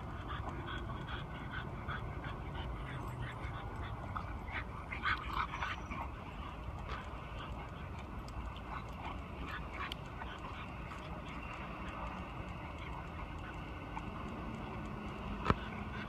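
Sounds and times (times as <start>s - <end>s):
puppies yapping and whining: 0.0s - 16.0s.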